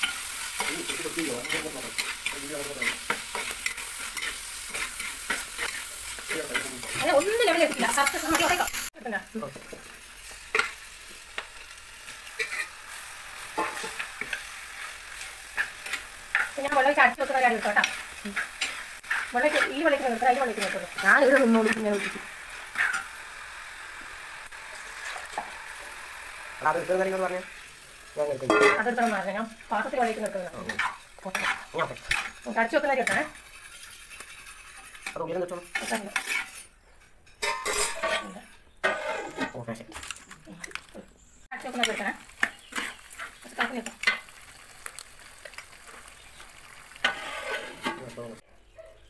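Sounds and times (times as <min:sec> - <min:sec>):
metal spoon scraping a pot: 0:00.0 - 0:08.8, 0:12.4 - 0:12.8, 0:13.4 - 0:23.1, 0:30.1 - 0:39.6, 0:47.0 - 0:48.1
food sizzling in hot oil: 0:00.0 - 0:48.4.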